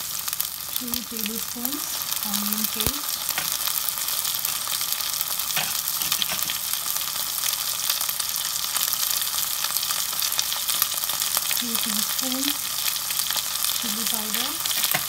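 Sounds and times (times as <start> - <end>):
oil sizzling with onions: 0.0 - 15.0.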